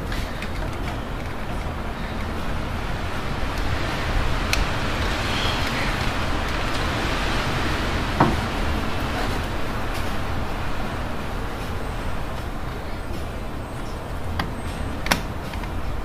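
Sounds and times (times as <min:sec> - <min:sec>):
low rumble and hiss: 0:00.0 - 0:16.0
knock: 0:08.2 - 0:08.4.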